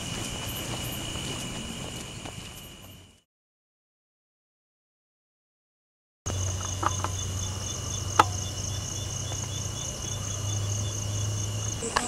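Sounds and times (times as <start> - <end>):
crickets trilling: 0.0 - 3.2, 6.3 - 12.0.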